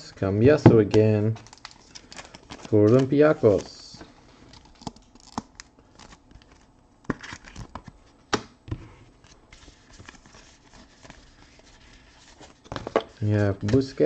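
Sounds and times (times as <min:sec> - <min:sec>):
cards sliding and rustling: 0:08.7 - 0:14.0.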